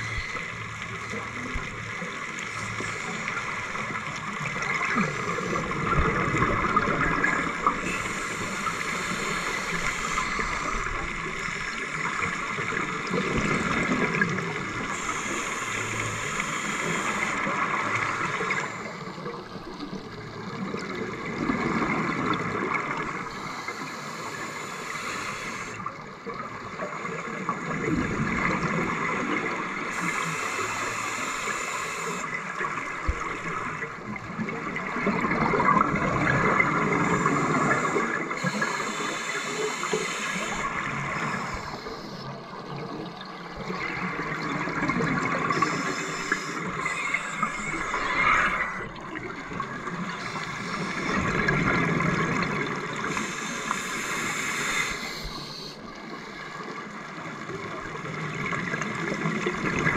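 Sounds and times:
underwater hiss: 2.3s - 19.4s, 20.9s - 26.1s, 28.5s - 33.9s, 35.2s - 56.9s
bubbles rising underwater: 3.7s - 7.8s, 32.4s - 38.8s, 40.4s - 53.1s.

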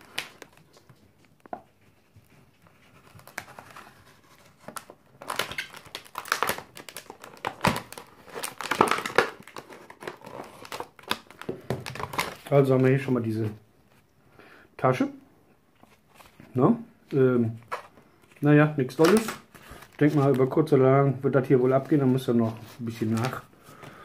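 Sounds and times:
plastic crinkling and crackling: 0.0s - 13.2s, 17.5s - 20.8s, 21.6s - 24.0s.

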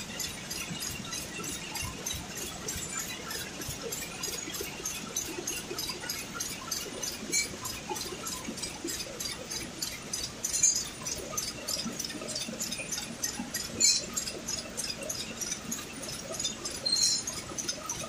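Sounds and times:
knitting machine clatter: 0.0s - 18.0s
machine hum: 0.0s - 18.0s
metallic clinks: 10.4s - 11.2s, 12.7s - 18.0s.

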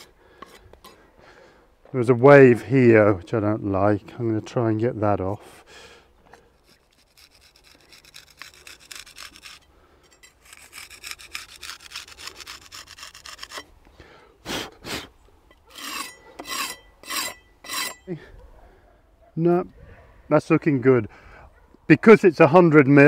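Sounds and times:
hand scraper rasping on concrete: 0.0s - 1.0s, 6.4s - 13.7s, 15.7s - 18.1s.

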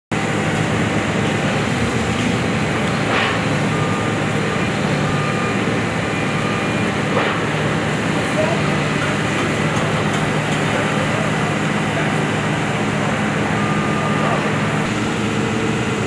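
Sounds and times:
excavator diesel engine running: 0.1s - 16.0s.

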